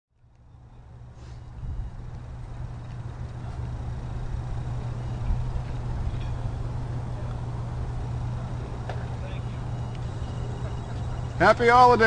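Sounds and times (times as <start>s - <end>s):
low mechanical hum: 0.1s - 12.0s
rumbling urban background: 0.1s - 12.0s.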